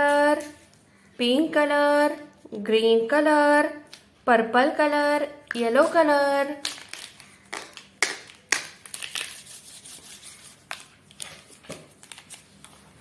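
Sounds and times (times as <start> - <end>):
plastic pens clicking and rubbing: 6.6 - 12.8.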